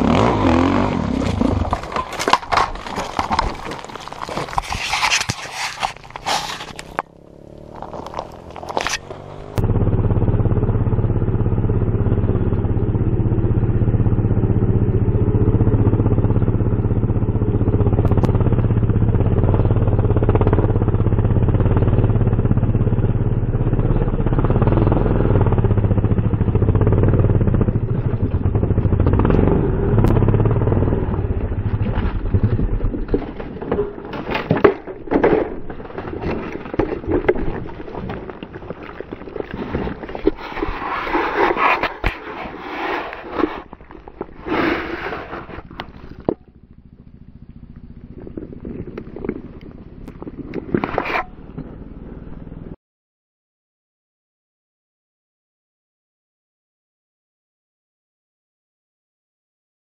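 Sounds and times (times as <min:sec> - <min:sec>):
motorcycle engine running at low revs: 0:00.0 - 0:03.4, 0:05.8 - 0:52.8
knocks and scrapes: 0:00.0 - 0:09.6, 0:31.1 - 0:46.5, 0:48.1 - 0:51.9.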